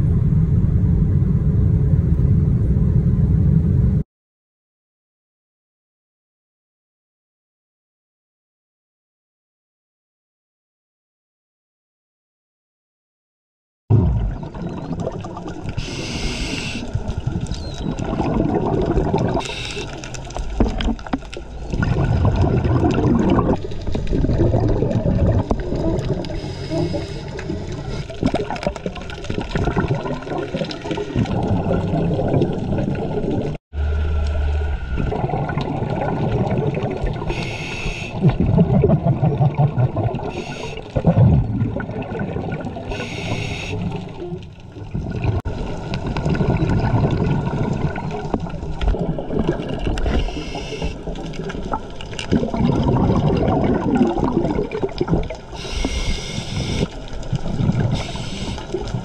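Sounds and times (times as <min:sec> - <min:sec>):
muffled underwater rumble: 0:00.0 - 0:04.0, 0:13.9 - 0:59.0
scuba regulator bubbles hissing: 0:14.0 - 0:20.8, 0:21.6 - 0:33.0, 0:34.9 - 0:44.2, 0:48.9 - 0:59.0.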